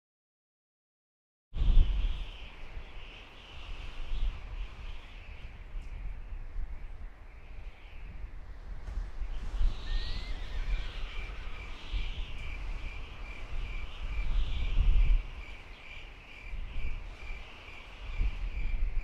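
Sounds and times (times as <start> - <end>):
rising bird whistle: 9.3 - 15.6.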